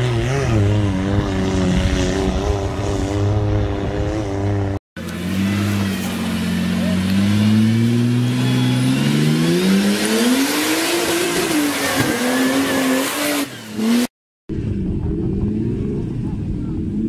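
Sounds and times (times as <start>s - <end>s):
another engine: 0.0s - 17.0s
engine revving under load: 0.0s - 17.0s
tyres in mud: 5.0s - 14.1s.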